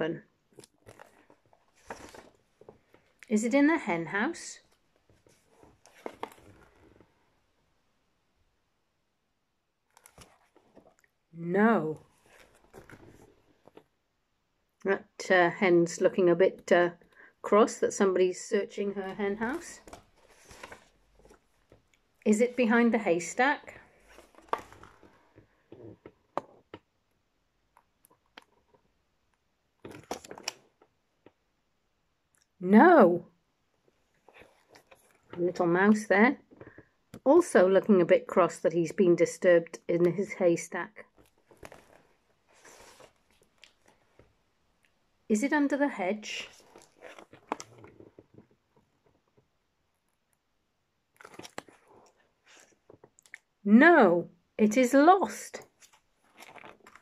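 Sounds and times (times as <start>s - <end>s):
fingers handling stiff book: 0.5s - 3.3s, 4.6s - 7.3s, 9.9s - 11.2s, 11.9s - 14.0s, 18.9s - 27.1s, 29.8s - 31.4s, 33.8s - 35.5s, 41.0s - 45.0s, 46.2s - 49.6s, 51.1s - 53.5s, 55.6s - 57.0s.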